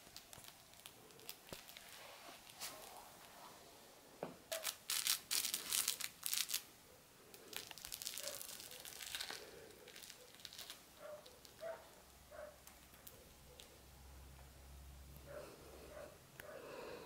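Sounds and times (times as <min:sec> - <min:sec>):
plush toy crinkling: 0:00.0 - 0:03.4, 0:04.5 - 0:06.7, 0:07.3 - 0:13.8.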